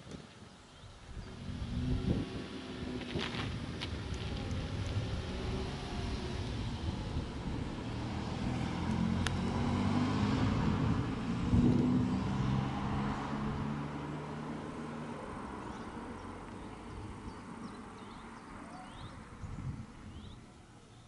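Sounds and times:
engine running: 1.0 - 17.7.

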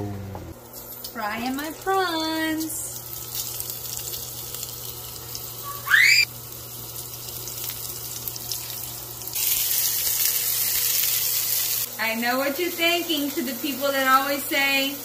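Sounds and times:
prawns sizzling in oil: 1.7 - 15.0
short rising whistle: 5.8 - 6.2.

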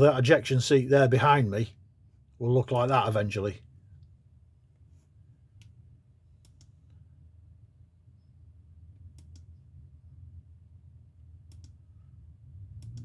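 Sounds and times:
low steady hum: 0.0 - 13.0
computer mouse clicking: 6.4 - 6.9, 9.1 - 9.5, 11.5 - 11.8.

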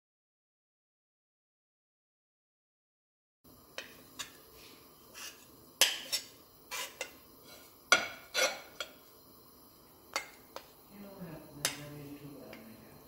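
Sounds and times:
metal spoon scraping a plate: 5.1 - 9.0.

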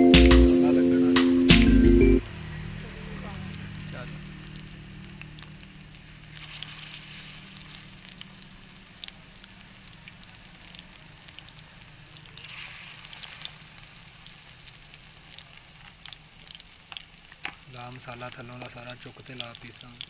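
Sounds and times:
fish sizzling in hot oil: 2.4 - 20.0
spatula turning fish: 3.5 - 9.1.

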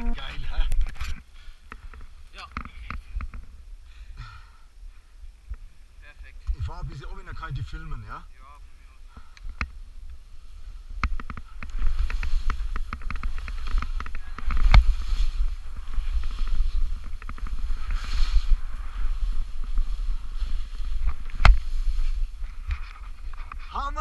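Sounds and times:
wind buffeting microphone: 9.4 - 24.0.

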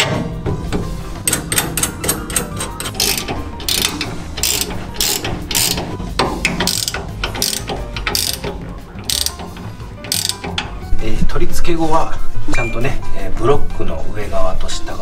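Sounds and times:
ratchet wrench clicking: 1.2 - 10.8.

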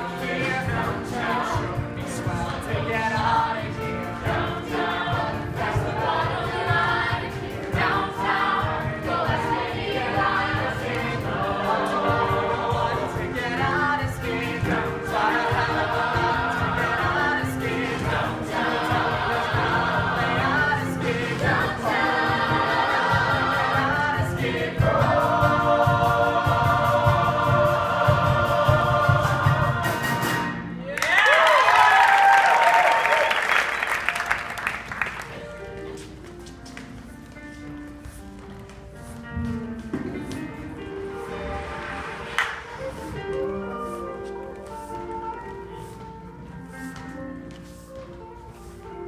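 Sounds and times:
drums: 0.0 - 30.8
group singing musical theatre song: 0.0 - 30.9, 31.7 - 49.0
piano: 0.0 - 49.0.

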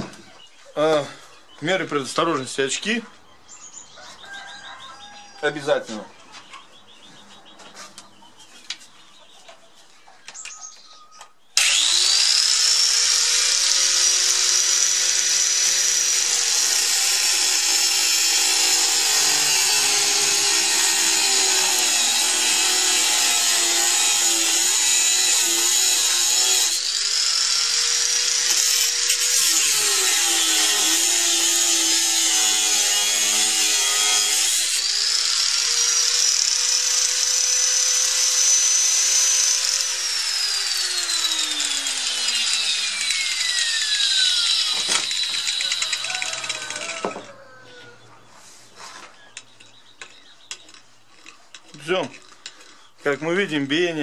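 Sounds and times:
grinder grinding into steel: 11.6 - 47.4
angle grinder whining: 11.6 - 47.8.

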